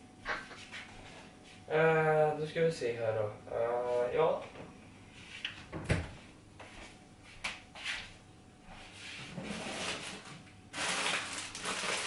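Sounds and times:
plastic bag rustling: 0:09.4 - 0:12.0.

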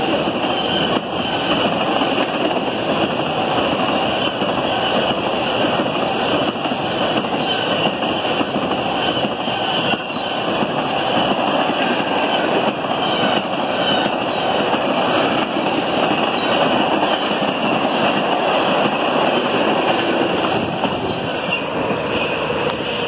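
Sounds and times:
train wheels running on rails: 0:00.0 - 0:23.0.

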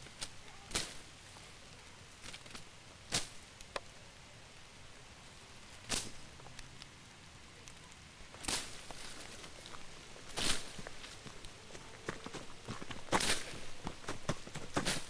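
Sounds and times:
footsteps crunching dry leaves: 0:08.3 - 0:15.0.

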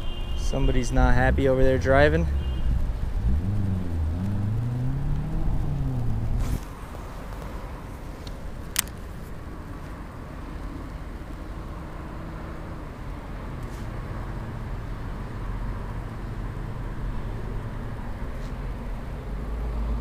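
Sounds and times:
car engine revving: 0:00.4 - 0:07.5.

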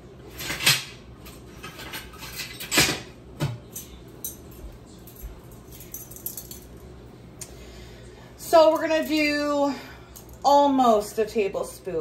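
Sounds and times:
utensils and dishes clinking: 0:00.3 - 0:06.9.

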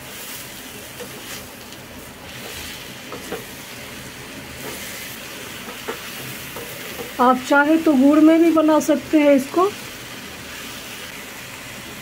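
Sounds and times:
sugar sizzling in a pan: 0:00.0 - 0:12.0
wooden spoon scraping: 0:04.5 - 0:07.2.

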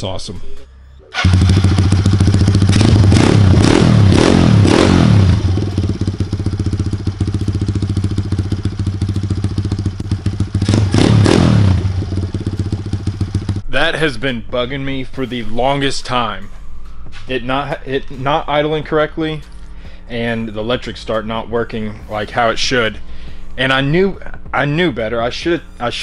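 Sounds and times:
motorcycle engine idling: 0:01.2 - 0:13.7.

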